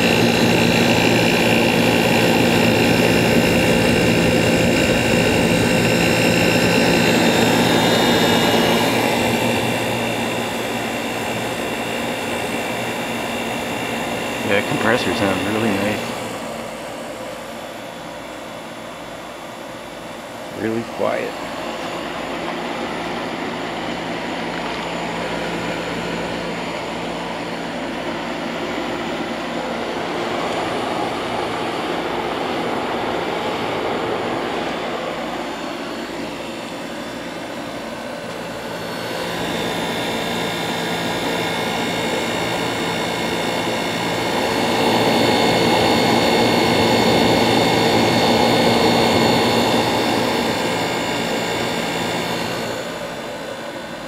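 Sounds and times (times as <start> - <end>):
air conditioner fan blowing: 0.0 - 54.0
compressor hum: 0.0 - 54.0.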